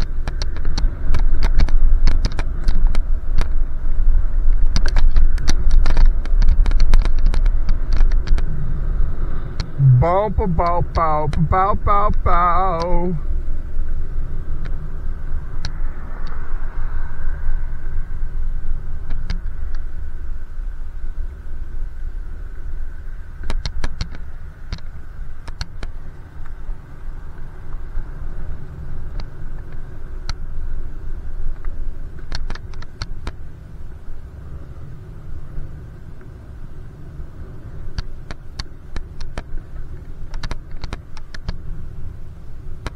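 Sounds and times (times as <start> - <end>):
sharp bicycle clicks: 0.0 - 3.7, 4.4 - 8.5, 23.4 - 26.6, 31.5 - 33.4, 37.9 - 41.7
wind and road noise: 0.0 - 42.9.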